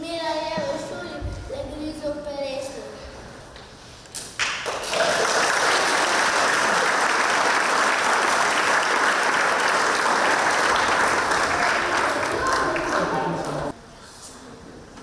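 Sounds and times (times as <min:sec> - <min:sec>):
audience applauding: 0:04.4 - 0:13.7.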